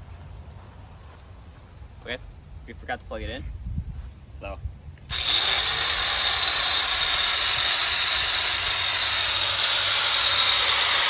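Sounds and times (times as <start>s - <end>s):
angle grinder whirring: 5.1s - 11.0s.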